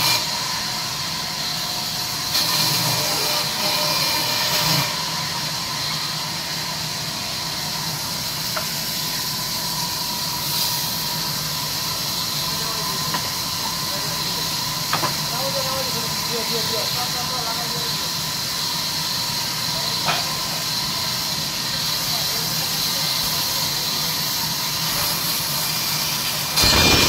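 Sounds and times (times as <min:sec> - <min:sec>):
band saw ripping timber: 0:26.6 - 0:27.0.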